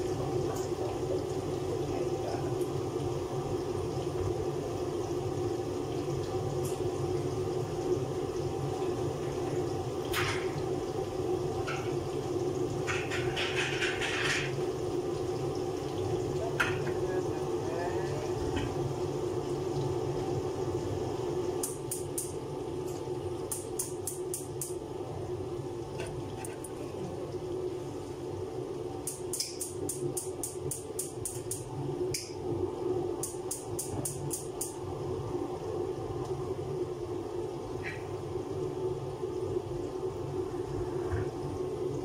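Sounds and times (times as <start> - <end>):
utensil ticking in a pan: 21.6 - 22.4, 23.5 - 24.8, 29.0 - 32.4, 33.2 - 34.8.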